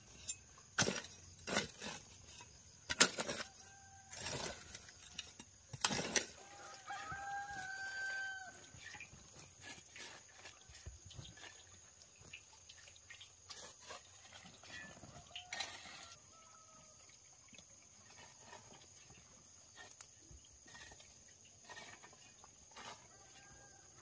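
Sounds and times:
rooster crowing: 0:03.4 - 0:04.9, 0:06.4 - 0:08.8, 0:23.0 - 0:24.0.

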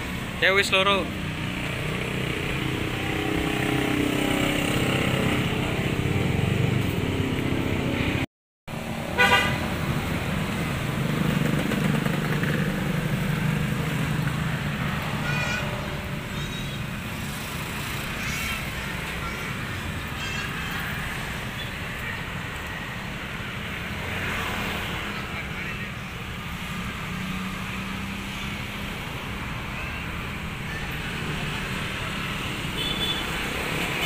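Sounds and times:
motorcycle engines passing: 0:00.0 - 0:34.0
horn toot: 0:09.1 - 0:09.7.

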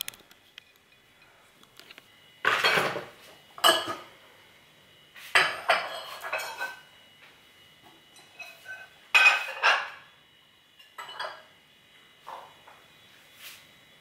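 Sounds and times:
dishes and cutlery clattering: 0:03.6 - 0:04.0, 0:05.4 - 0:06.8, 0:08.2 - 0:10.0, 0:10.9 - 0:11.5.

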